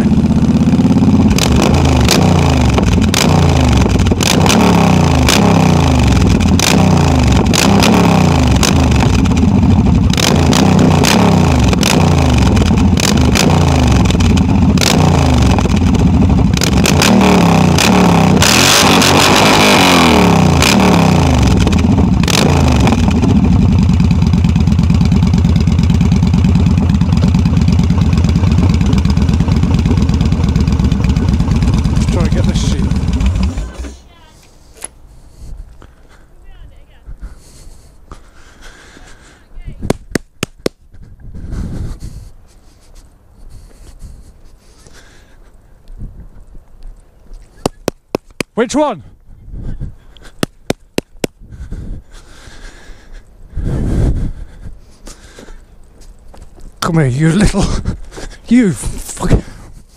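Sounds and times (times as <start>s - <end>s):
motorcycle engine revving: 0.0s - 34.1s.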